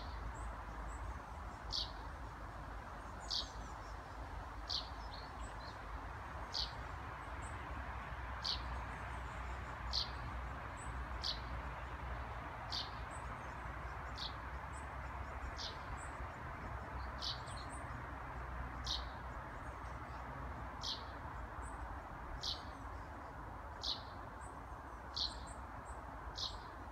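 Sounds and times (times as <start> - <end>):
sparrow calling: 4.7 - 5.7, 12.7 - 14.4, 17.1 - 17.8, 18.8 - 19.2, 20.8 - 21.2, 22.4 - 22.8, 23.8 - 24.2, 25.1 - 25.6, 26.4 - 26.8.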